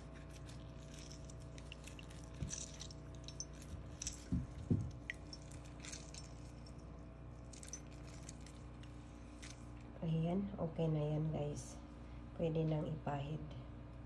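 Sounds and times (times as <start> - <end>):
lemon pulp squishing: 0.0 - 9.6.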